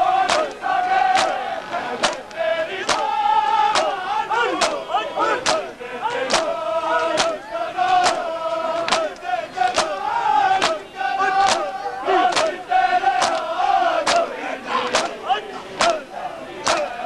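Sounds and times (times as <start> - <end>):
men chanting: 0.0 - 17.0
chest beating slaps: 0.3 - 1.4, 2.0 - 3.1, 3.7 - 4.0, 10.6 - 10.8.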